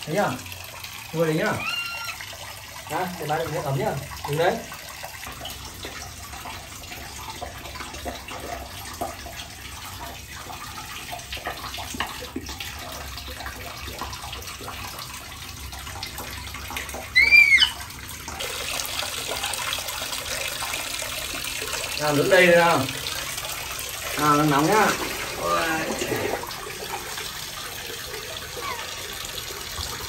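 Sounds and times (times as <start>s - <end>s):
water pouring: 0.0s - 30.0s
water splashing in bath tub: 0.0s - 30.0s
short high squeal: 17.1s - 17.8s.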